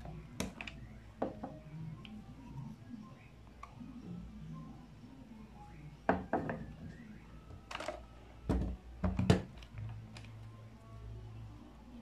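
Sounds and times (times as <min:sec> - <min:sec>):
plastic knocks and clicks: 0:07.7 - 0:09.7.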